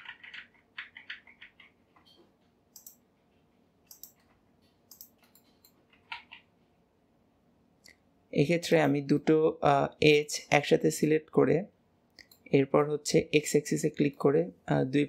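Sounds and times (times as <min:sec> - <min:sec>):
computer mouse clicks: 0:00.0 - 0:03.0, 0:03.9 - 0:06.5.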